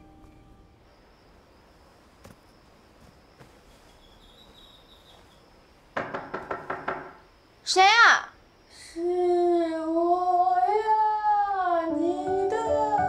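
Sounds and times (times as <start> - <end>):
night insects chirring: 0.0 - 13.0
loud knocks on a door: 6.0 - 7.2.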